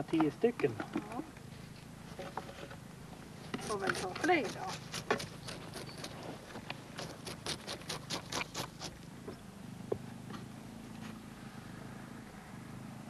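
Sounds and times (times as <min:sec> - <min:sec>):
knife scraping fish: 0:03.6 - 0:09.0.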